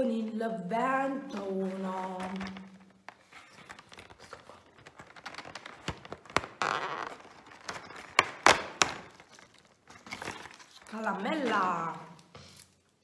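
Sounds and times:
cardboard tearing: 0:03.5 - 0:11.7.

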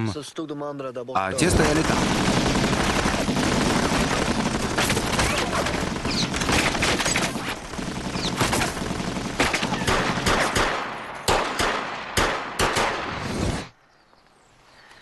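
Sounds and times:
heavy gunfire barrage: 0:01.4 - 0:13.3
single sharp gunshots: 0:09.4 - 0:13.7.

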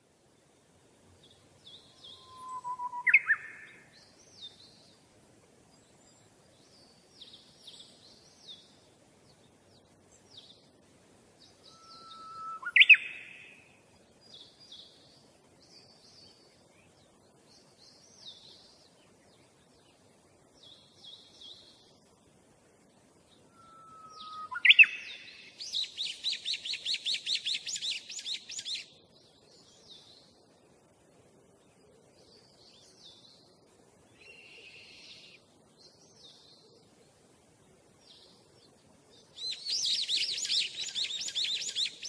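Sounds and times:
small birds chirping: 0:00.3 - 0:42.0
bird whistle with upward sweep: 0:02.0 - 0:03.6, 0:11.7 - 0:13.2, 0:23.5 - 0:25.2.

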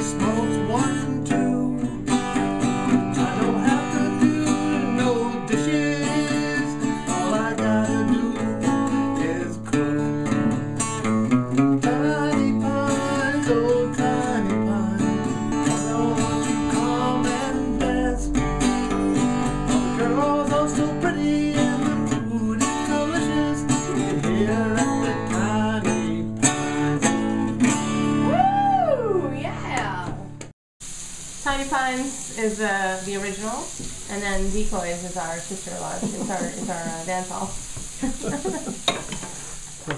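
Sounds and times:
acoustic guitar playing: 0:00.0 - 0:30.5.

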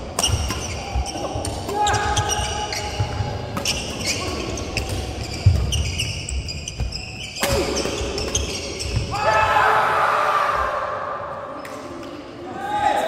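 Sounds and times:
shoes squeaking: 0:00.2 - 0:09.2.

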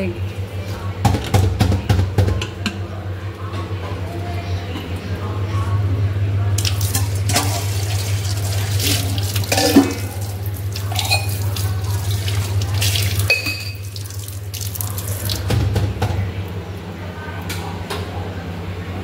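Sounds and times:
steel utensils clinking: 0:09.4 - 0:10.1, 0:10.8 - 0:11.6.

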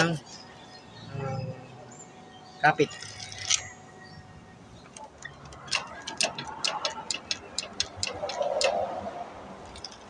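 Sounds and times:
motorcycle drivetrain clicking: 0:04.9 - 0:09.0.

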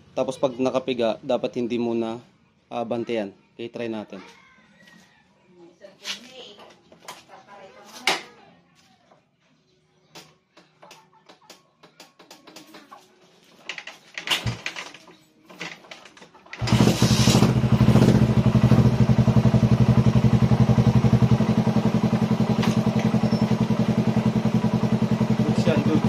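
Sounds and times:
motorcycle engine starting and idling: 0:13.6 - 0:26.0.

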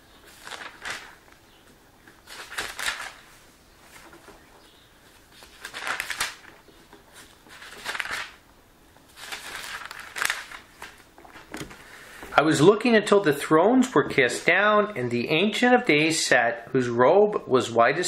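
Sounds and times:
paper pages rustling: 0:00.0 - 0:08.4, 0:09.0 - 0:11.9.

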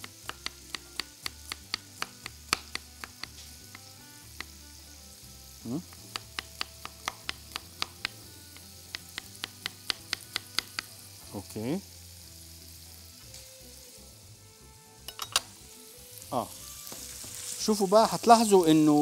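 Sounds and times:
knife chopping on wooden board: 0:00.0 - 0:04.6, 0:05.9 - 0:10.9
sausage sizzling in a pan: 0:00.0 - 0:19.0.

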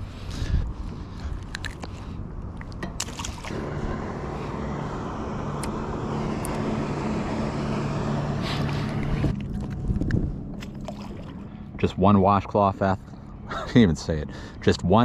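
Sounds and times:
churning water: 0:02.5 - 0:13.0
electric trolling motor humming: 0:03.0 - 0:11.8.

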